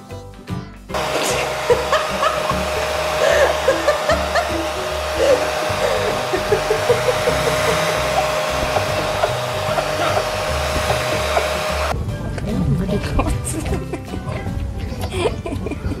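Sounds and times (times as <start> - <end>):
dryer blowing air with whine: 0.9 - 12.0.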